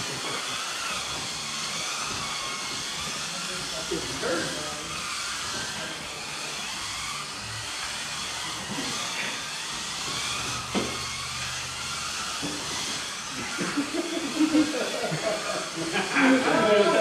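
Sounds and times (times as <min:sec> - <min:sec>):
electric motors whining: 0:00.0 - 0:17.0.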